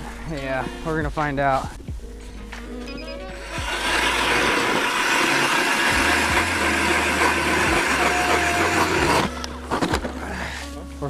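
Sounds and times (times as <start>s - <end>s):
electric ice auger drilling: 3.4s - 10.1s.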